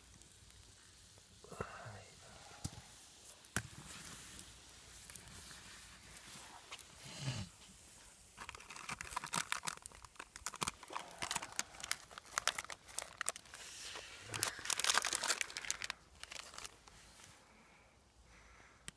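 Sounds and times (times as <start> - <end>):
plastic wrapper crinkling: 8.4 - 17.0.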